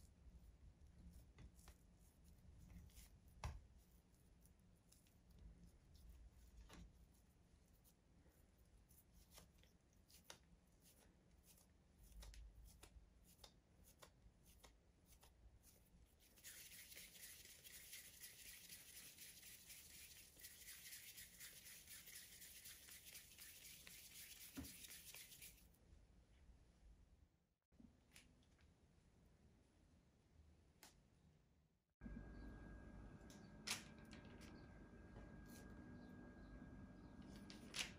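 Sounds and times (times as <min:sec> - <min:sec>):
dough rubbing between palms: 0:00.0 - 0:25.7.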